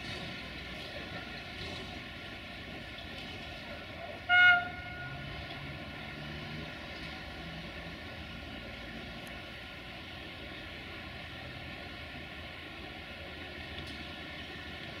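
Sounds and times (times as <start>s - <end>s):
idling diesel train rumble: 0.0s - 15.0s
train horn toot: 4.3s - 5.3s.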